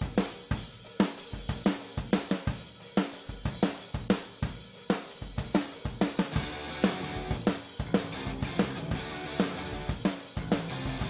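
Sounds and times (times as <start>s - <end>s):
drum kit beat: 0.0s - 11.0s
rock band playing: 6.0s - 11.0s.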